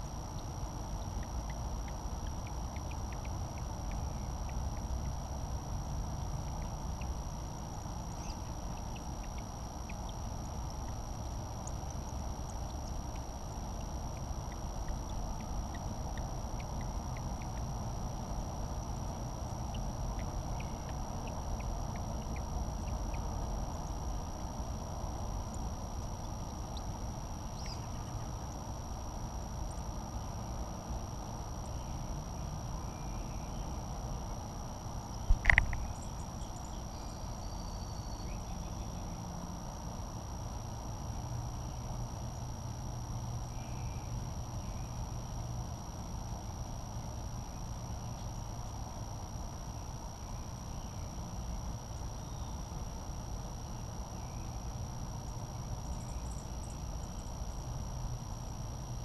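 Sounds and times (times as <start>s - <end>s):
thin high whine: 0.0s - 59.0s
faint high chirps: 35.0s - 39.1s.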